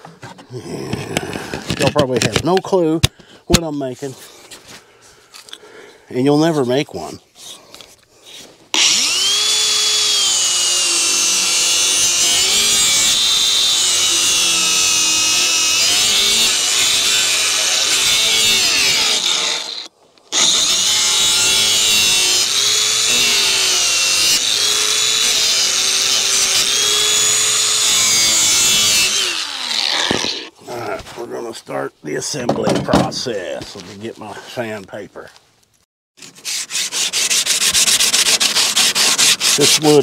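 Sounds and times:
power tool cutting wood: 8.8 - 30.5, 36.7 - 40.0.

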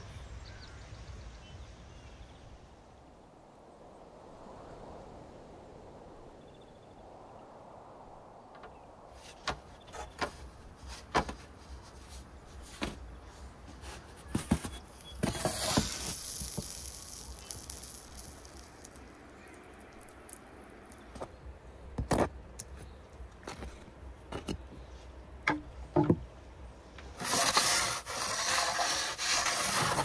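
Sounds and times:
scraping rustling noise: 9.1 - 19.1, 27.0 - 30.0
sharp knocks and clicks: 25.4 - 26.3.

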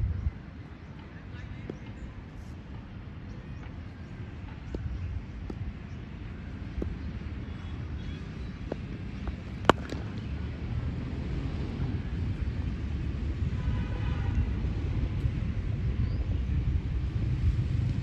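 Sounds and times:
wind rumbling on microphone: 0.0 - 0.7, 1.3 - 18.0
sharp crack: 9.5 - 10.3.

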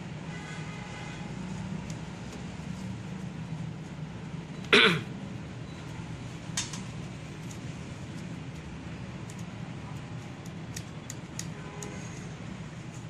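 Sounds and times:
person coughing: 4.7 - 5.1.

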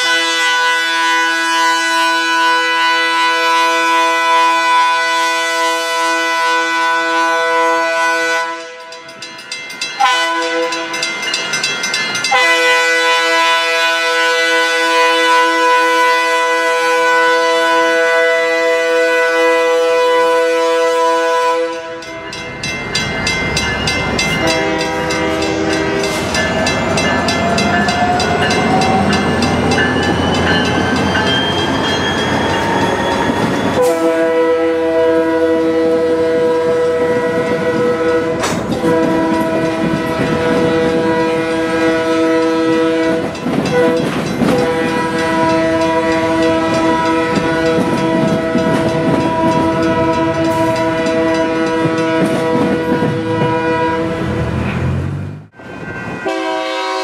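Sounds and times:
locomotive air horn blasts: 0.0 - 9.0, 10.0 - 11.1, 12.3 - 22.3, 24.3 - 29.8, 33.7 - 54.5, 55.9 - 57.0.

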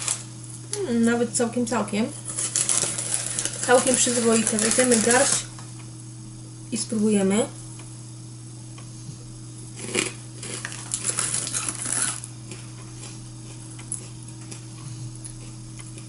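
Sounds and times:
foil snack bag crinkling: 0.0 - 0.3, 2.2 - 5.5, 9.8 - 12.6
low electrical hum: 0.0 - 16.0.

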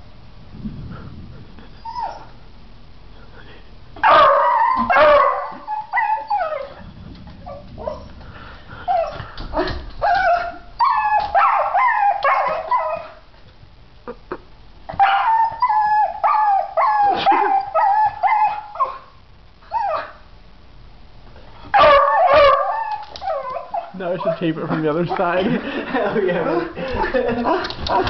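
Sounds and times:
dogs whining and yipping: 1.8 - 2.4, 4.0 - 8.2, 8.8 - 13.2, 14.9 - 19.0, 19.6 - 20.2, 21.7 - 24.3.

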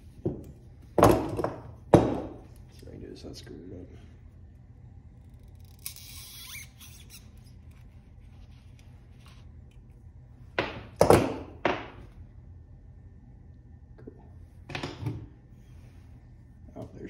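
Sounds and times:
scraping squeak: 5.7 - 7.8.

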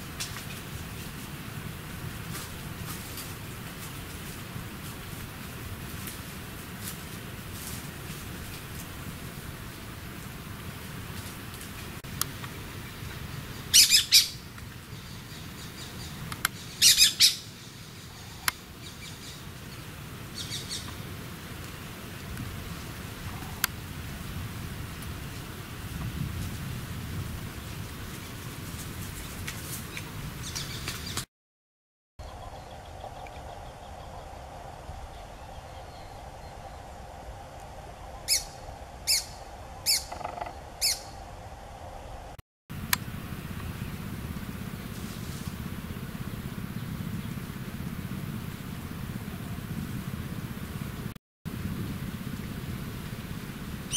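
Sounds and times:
parakeet high calls: 13.7 - 14.4, 16.6 - 17.5, 20.4 - 20.9, 38.3 - 41.2
faint background drone: 32.2 - 53.9.

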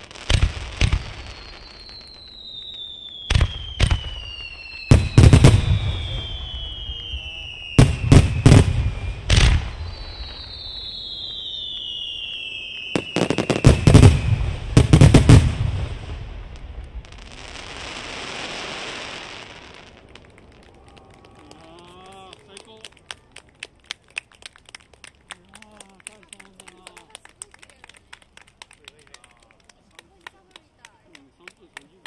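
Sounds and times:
firework whistles sliding down: 0.6 - 15.1.

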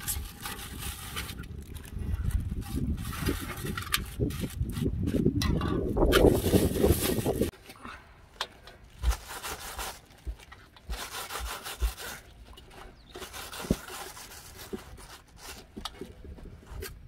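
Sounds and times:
plastic bag crinkling: 6.2 - 7.5.

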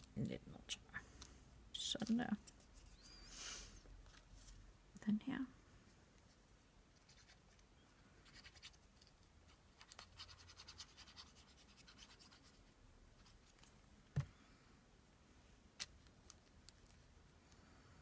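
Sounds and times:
paper scratching and rubbing: 9.8 - 13.4.

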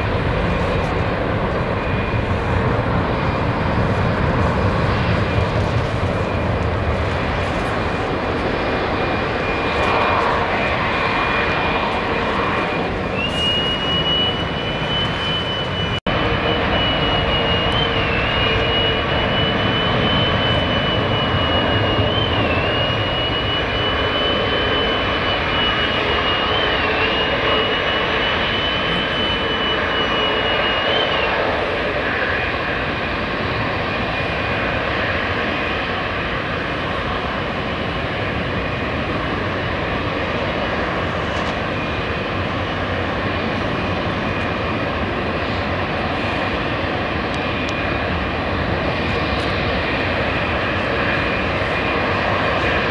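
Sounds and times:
jet engines with high whine: 0.0 - 52.9.

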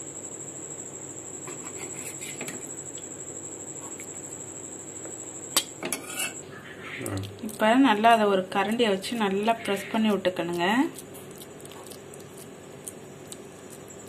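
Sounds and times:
metal spatula scraping steel pan: 5.9 - 6.4.

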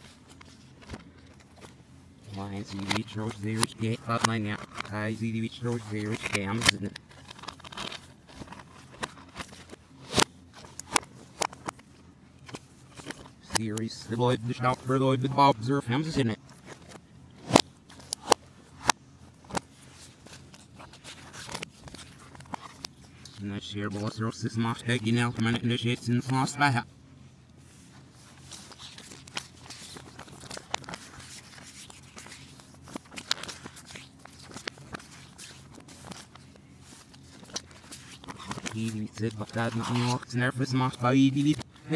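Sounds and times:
paper leaflet rustling: 0.0 - 41.9
plastic cases clicking: 16.4 - 23.3.

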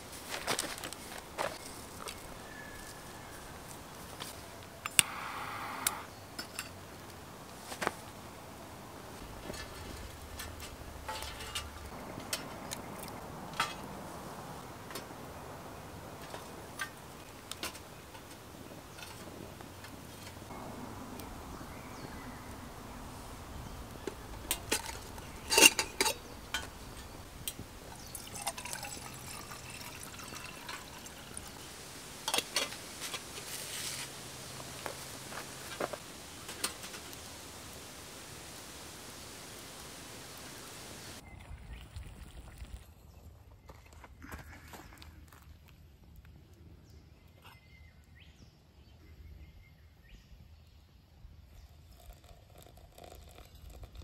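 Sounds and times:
liquid sounds: 24.0 - 32.7, 51.8 - 54.0.

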